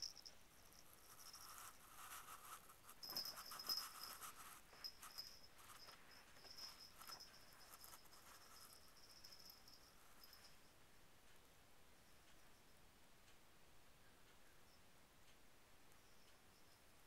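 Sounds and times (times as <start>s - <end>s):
faint high whine: 0.0s - 17.0s
kitten pawing and rustling: 0.7s - 10.5s.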